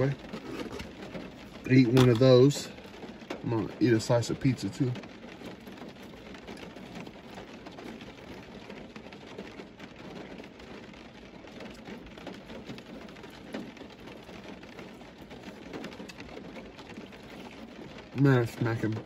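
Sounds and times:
close-up chewing: 0.2s - 1.0s.

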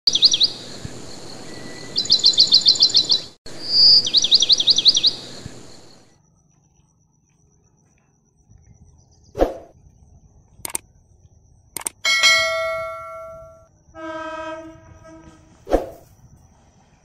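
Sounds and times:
mouse clicks: 10.6s - 10.8s, 11.8s - 12.0s
steady low tone: 11.8s - 13.7s
bright bell-like ding: 12.0s - 13.7s.

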